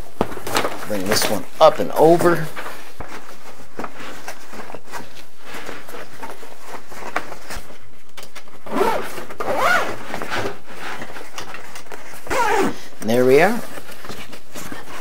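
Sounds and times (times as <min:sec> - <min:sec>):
cloth rustling: 0:00.0 - 0:15.0
zipper rasping: 0:08.6 - 0:10.6, 0:12.3 - 0:12.8.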